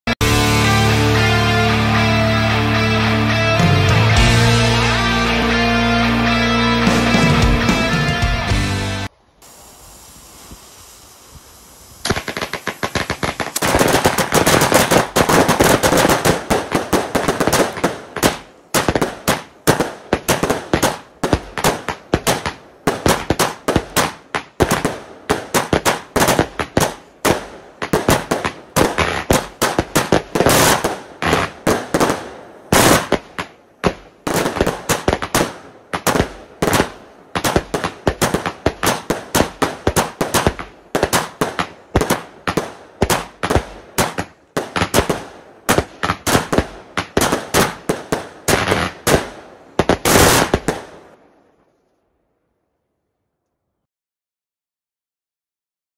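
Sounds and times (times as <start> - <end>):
firework cake shots: 9.4 - 50.9.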